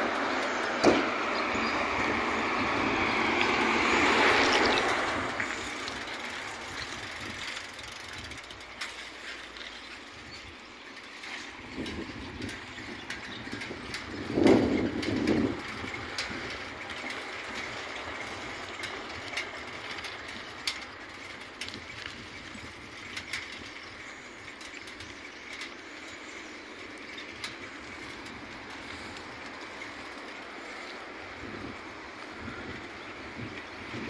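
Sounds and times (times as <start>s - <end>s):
road ambience hiss: 0.0s - 34.0s.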